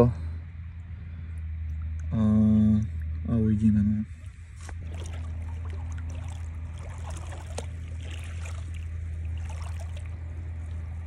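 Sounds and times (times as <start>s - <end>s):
steady low hum: 0.0s - 11.0s
water lapping and trickling: 2.8s - 11.0s
small splashes and drips: 4.1s - 11.0s.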